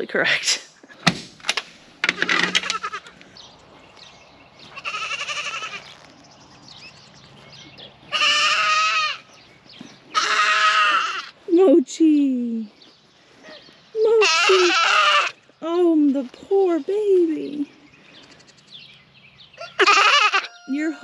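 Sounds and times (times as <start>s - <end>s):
goats bleating: 2.6s - 3.2s, 4.7s - 6.0s, 8.1s - 9.3s, 10.1s - 11.4s, 14.1s - 15.4s, 19.7s - 21.0s.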